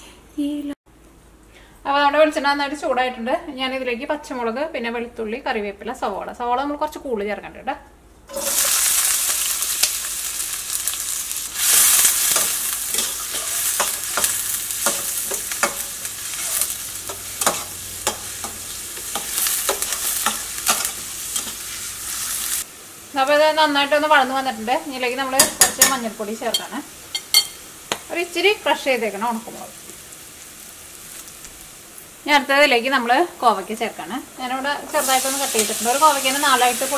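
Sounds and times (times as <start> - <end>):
onions sizzling in hot oil: 8.3 - 36.9
spatula scraping pan: 11.6 - 22.0.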